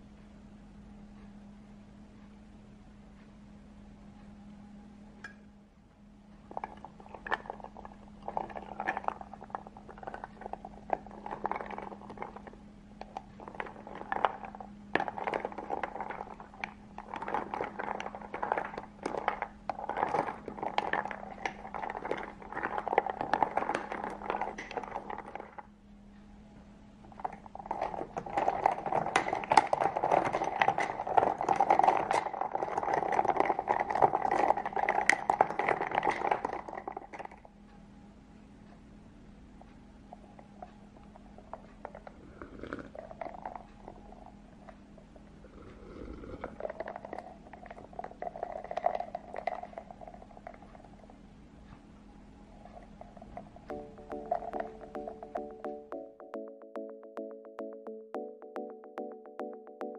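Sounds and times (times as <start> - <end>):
faint steady hum: 0.0 - 59.9
ice cubes clinking in glass jar: 13.5 - 25.6, 27.2 - 37.3, 46.3 - 50.0.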